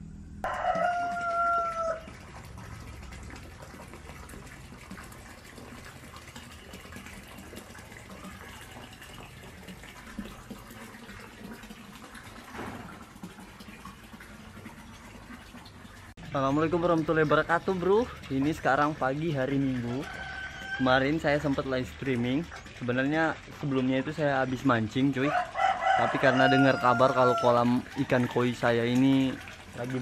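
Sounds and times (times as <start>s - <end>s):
water splashing into pond: 0.5s - 30.0s.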